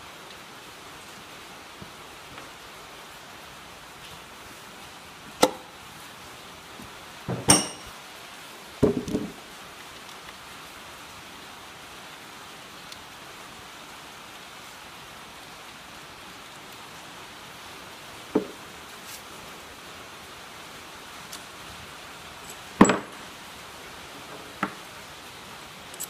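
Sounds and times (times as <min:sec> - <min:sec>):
steady hiss: 0:00.0 - 0:26.0
metal tools clinking: 0:07.4 - 0:07.9.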